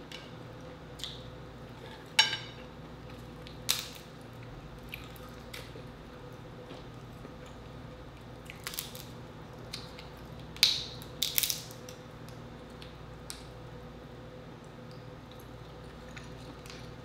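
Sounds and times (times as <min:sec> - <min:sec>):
crab shell cracking: 0:03.7 - 0:04.1, 0:08.5 - 0:13.5.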